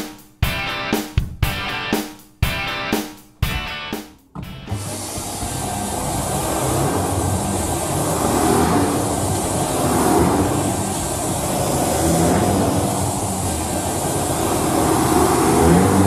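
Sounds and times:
vacuum cleaner on carpet: 0:04.6 - 0:16.0.

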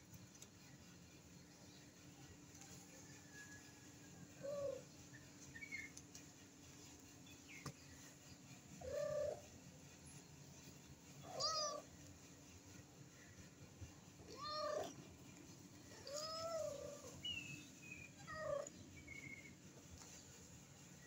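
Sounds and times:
faint high chirps: 0:01.5 - 0:21.0
cat meowing: 0:11.3 - 0:11.9, 0:14.3 - 0:15.0, 0:16.0 - 0:17.2.

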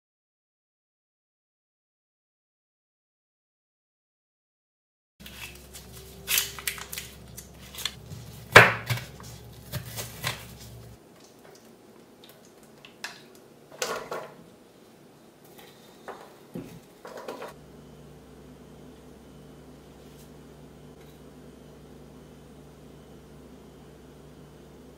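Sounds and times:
knife chopping on wooden board: 0:08.1 - 0:10.8.

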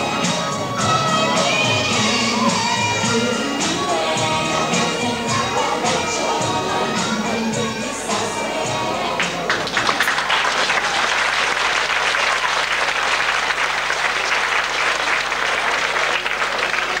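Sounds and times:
dance music: 0:00.0 - 0:10.0
audience applauding: 0:09.1 - 0:17.0.

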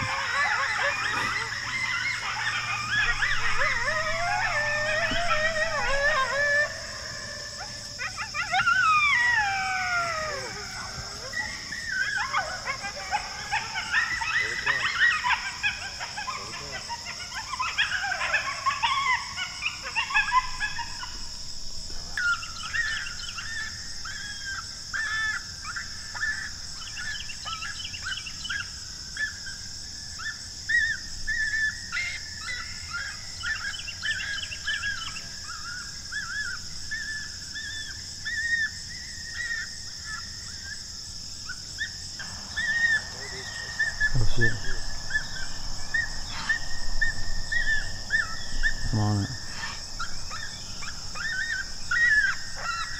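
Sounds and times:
coyotes yipping and howling: 0:00.0 - 0:52.9
high insect drone: 0:00.0 - 0:52.9
short whine-like calls: 0:41.9 - 0:52.9.

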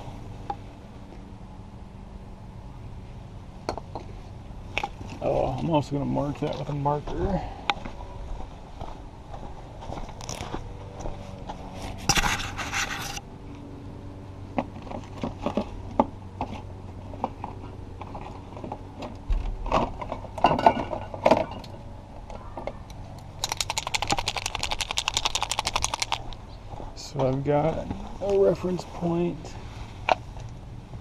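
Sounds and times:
marker rattling when shaken: 0:23.4 - 0:26.4
plastic parts and tools clicking: 0:23.4 - 0:26.4.

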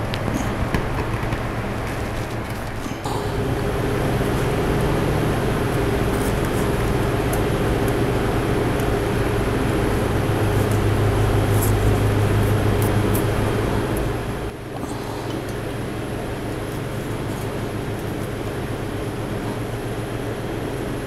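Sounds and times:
machine drone with low hum: 0:00.0 - 0:21.0.

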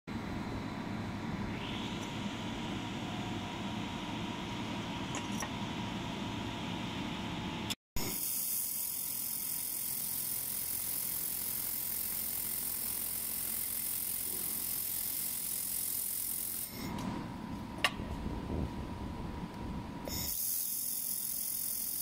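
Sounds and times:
laser welder high hiss: 0:08.0 - 0:16.7, 0:20.1 - 0:22.0.

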